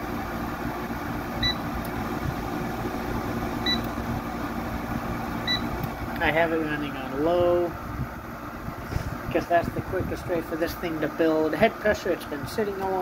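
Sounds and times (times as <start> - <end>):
air conditioner fan whirring: 0.0 - 13.0
short electronic beeps: 3.6 - 3.9, 5.4 - 5.7.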